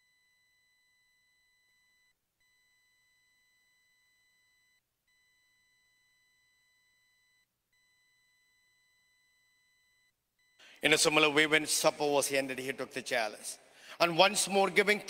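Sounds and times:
faint steady electronic tone: 0.0 - 10.8.

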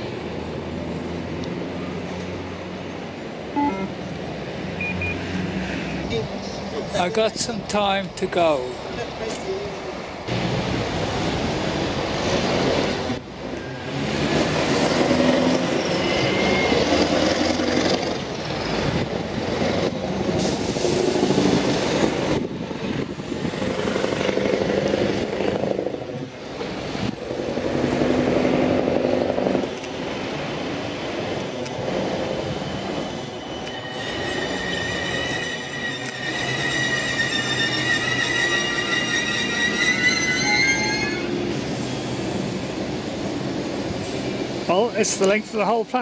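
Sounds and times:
electric train slowing to a stop: 10.3 - 44.6
high squeal of wheels: 15.5 - 17.3, 32.2 - 42.2.

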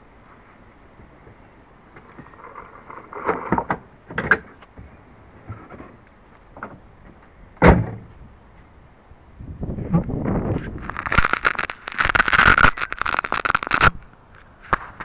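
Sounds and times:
loud thump: 7.6 - 8.1.

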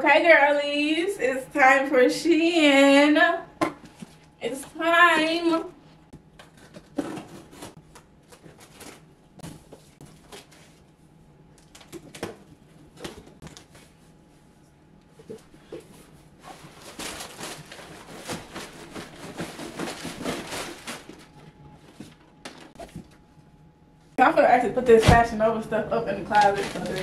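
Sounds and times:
plastic bags crinkling: 16.4 - 21.5, 26.3 - 27.0.

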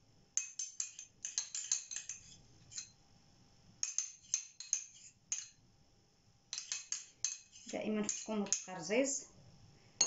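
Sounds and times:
metal spoon clinking on ceramic dish: 0.4 - 3.0, 3.8 - 5.6, 6.5 - 8.8.

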